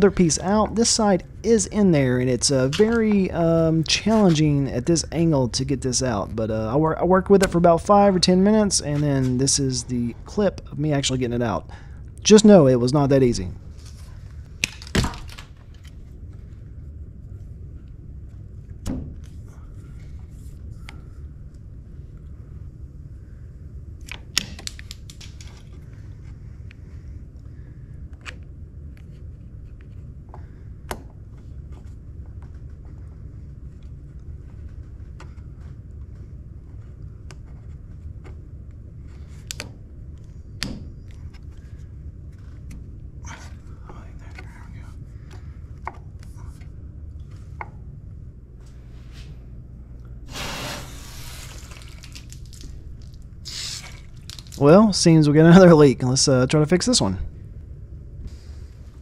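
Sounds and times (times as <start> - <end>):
steady low rumble: 0.0 - 14.6.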